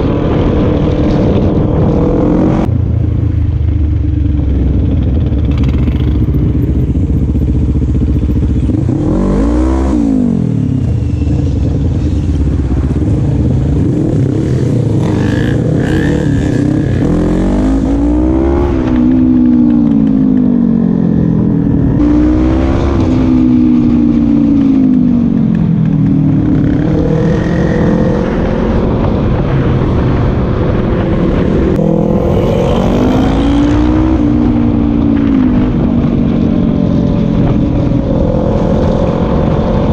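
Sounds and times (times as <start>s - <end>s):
quad bike engine accelerating: 4.2s - 30.6s, 31.3s - 39.9s.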